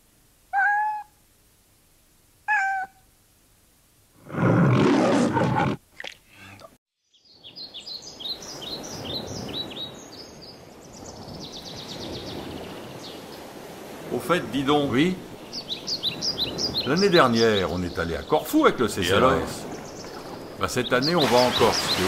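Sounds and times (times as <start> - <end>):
cat meowing: 0.5 - 1.1, 2.5 - 3.0
loud rough growl: 4.2 - 5.8
bird chirping: 7.0 - 13.2, 15.3 - 18.5.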